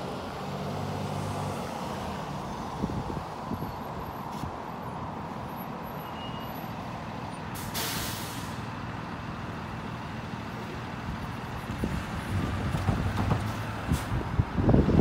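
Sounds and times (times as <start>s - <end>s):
road traffic rumble: 0.0s - 15.0s
sharp hiss: 7.6s - 8.6s.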